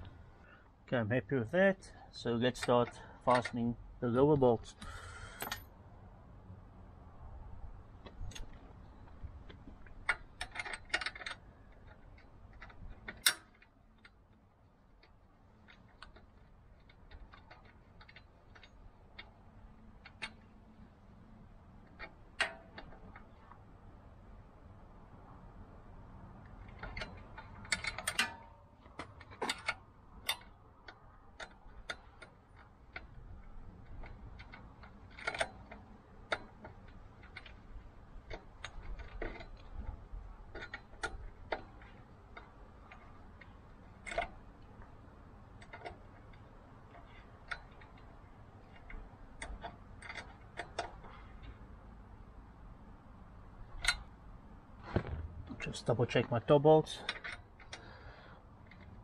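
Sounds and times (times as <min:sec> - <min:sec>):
allen key clicking in bolts: 0:09.8 - 0:14.2, 0:26.4 - 0:44.4, 0:45.5 - 0:51.6, 0:57.0 - 0:58.0.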